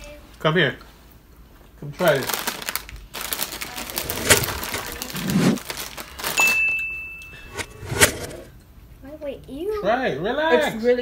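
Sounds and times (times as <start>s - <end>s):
snack bag crinkling and rustling: 2.0s - 6.7s
chips shaken out of bag: 2.1s - 6.5s.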